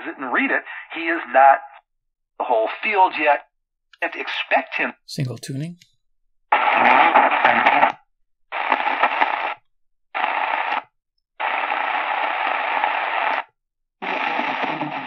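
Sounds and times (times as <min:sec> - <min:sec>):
radio static bursts: 0:06.6 - 0:08.0.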